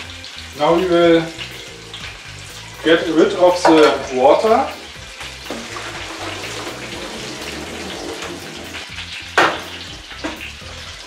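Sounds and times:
food sizzling in pans: 0.0s - 11.0s
water pouring from pot: 0.0s - 11.0s
pot clanking down: 3.6s - 4.2s, 5.2s - 10.6s.

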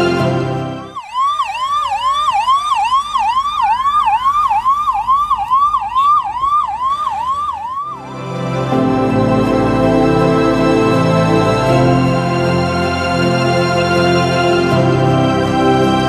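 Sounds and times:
background music: 0.0s - 1.0s, 7.8s - 16.0s
second siren rising and falling: 0.0s - 12.3s
siren yelping: 0.8s - 8.2s.

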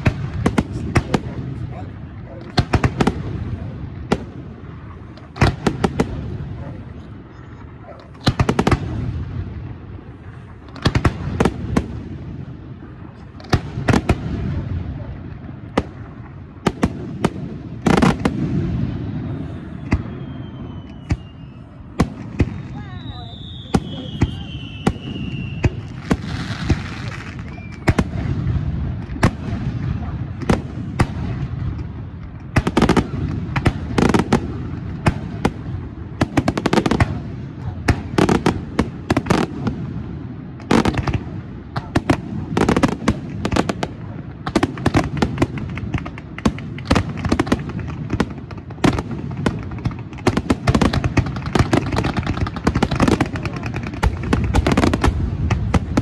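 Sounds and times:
fireworks bursting with bangs: 0.0s - 56.0s
whistling firework shell: 19.2s - 28.2s.

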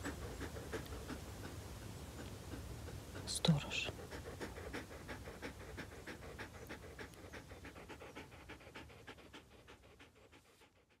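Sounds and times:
dog panting: 0.0s - 11.0s.

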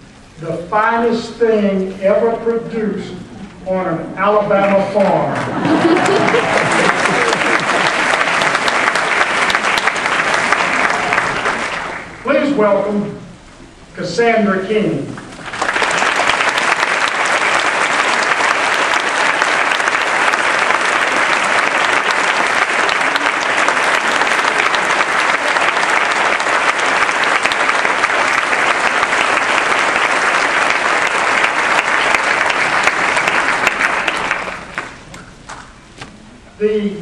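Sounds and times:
audience applauding: 5.2s - 12.2s, 15.4s - 35.6s.

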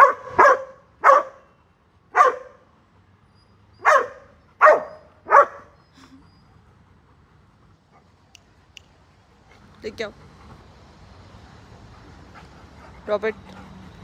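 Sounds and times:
dog barking: 0.0s - 1.4s, 2.2s - 2.6s, 3.8s - 5.7s.

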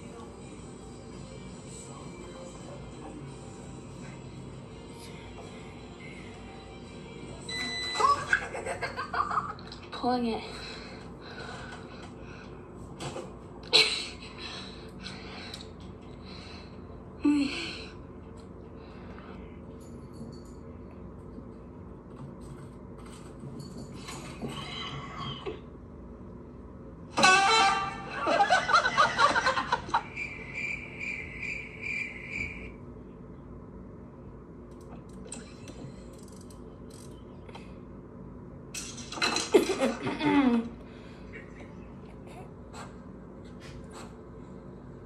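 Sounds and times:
high chirping from small speaker: 30.0s - 32.8s.

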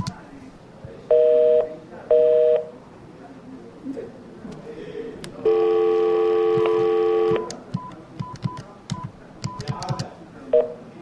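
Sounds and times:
telephone dial tone: 5.5s - 7.9s
keypad presses with beeps: 6.2s - 10.7s.

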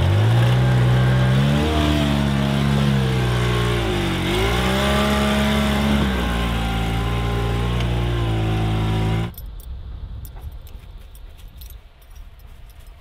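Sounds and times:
engine running hard under load: 0.0s - 9.3s
faint jingling and clicking: 9.3s - 13.0s.

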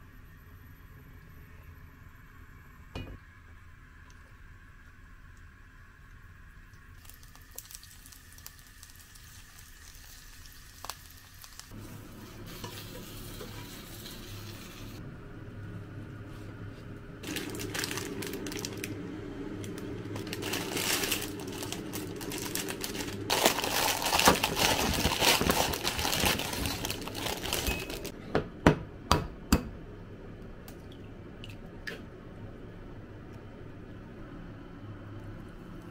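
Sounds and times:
vegetables sizzling in oil: 7.0s - 15.0s
plastic bag crinkling: 17.2s - 19.0s, 19.6s - 28.1s.

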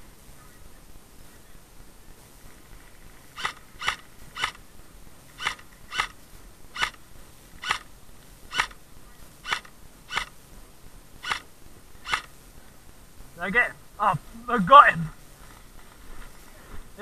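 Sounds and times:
airsoft rifle single shots: 9.4s - 10.3s, 11.2s - 12.3s.

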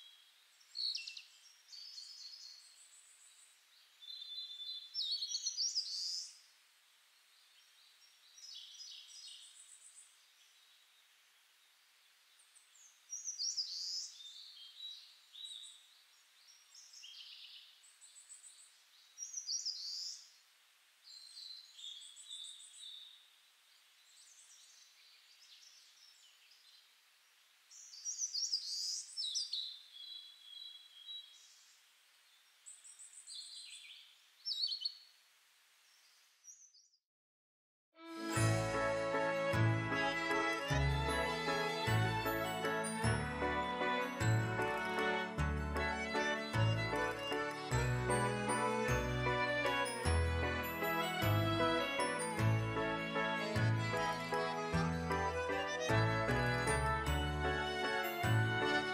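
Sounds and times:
small birds chirping and trilling: 0.0s - 6.4s, 7.2s - 11.7s, 12.3s - 20.3s, 27.7s - 35.1s
faint steady hiss: 0.0s - 36.6s.

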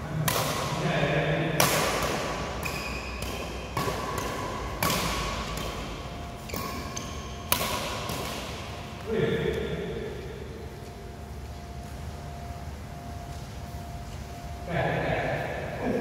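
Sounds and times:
rackets hitting shuttlecock: 0.2s - 0.9s, 1.5s - 9.7s.

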